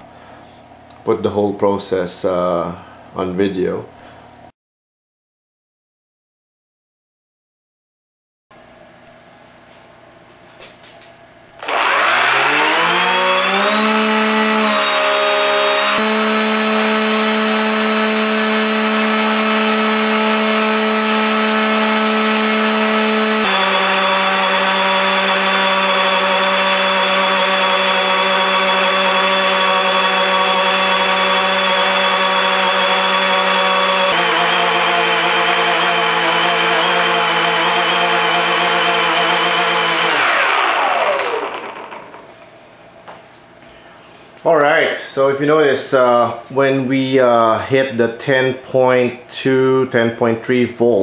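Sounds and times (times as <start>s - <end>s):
electric motor and propeller whine: 11.6s - 42.4s.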